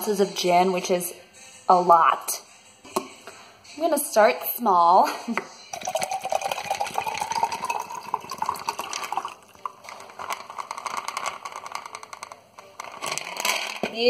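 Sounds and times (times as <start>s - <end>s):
liquid pouring into a glass: 5.7s - 9.9s.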